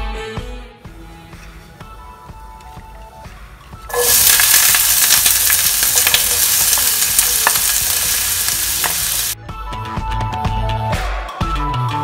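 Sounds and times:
onion sizzling in hot oil: 3.9s - 9.4s.

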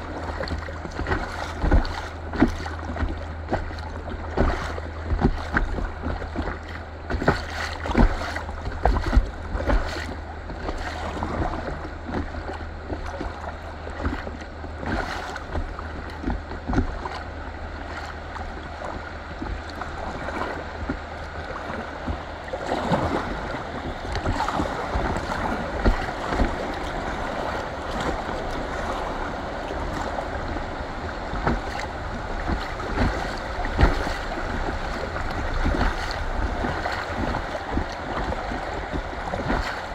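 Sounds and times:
river water rushing: 0.0s - 39.9s
wind rumble on microphone: 0.0s - 39.9s
knocks against kayak hull: 0.4s - 10.8s, 23.8s - 26.7s, 31.3s - 39.8s.

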